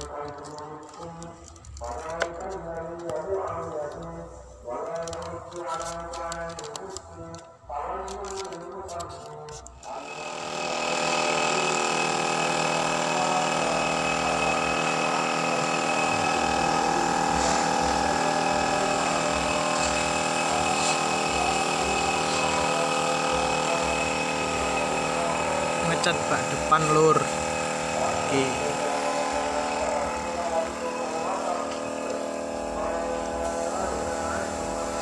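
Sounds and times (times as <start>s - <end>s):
air compressor running: 0.0s - 35.0s
paint spray gun hissing: 9.9s - 35.0s.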